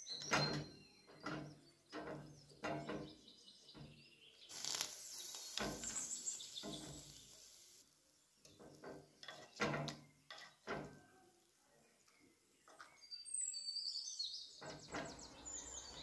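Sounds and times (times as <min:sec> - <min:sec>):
hiss: 0:04.5 - 0:07.9
metal spoon scraping clay pot: 0:10.2 - 0:10.6.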